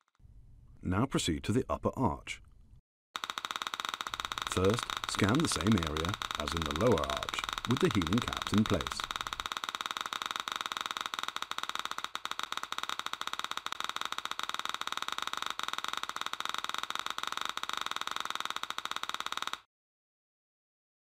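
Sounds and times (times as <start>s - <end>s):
rapid electronic ticking: 3.2s - 19.7s
steady electronic tones: 3.8s - 9.6s.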